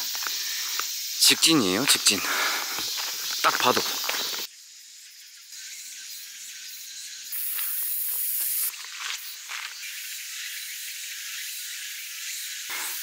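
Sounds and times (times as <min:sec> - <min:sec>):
footsteps on gravel: 0:00.0 - 0:00.9, 0:01.8 - 0:04.5, 0:08.4 - 0:09.8
insects buzzing: 0:00.0 - 0:13.0.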